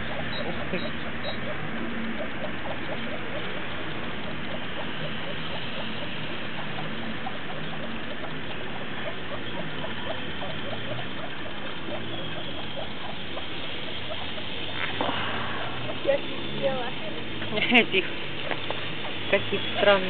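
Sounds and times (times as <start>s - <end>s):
faint chirping ticks: 0.0s - 15.0s
river water hissing: 13.7s - 16.9s.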